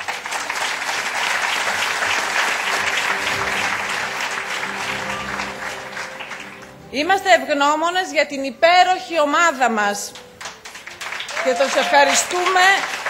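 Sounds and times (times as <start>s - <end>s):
audience applauding: 0.0s - 6.9s, 10.2s - 13.0s.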